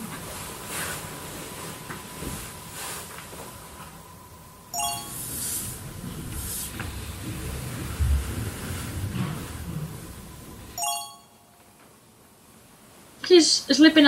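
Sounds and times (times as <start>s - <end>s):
bright chime sound effect: 4.7s - 5.5s, 10.8s - 11.6s.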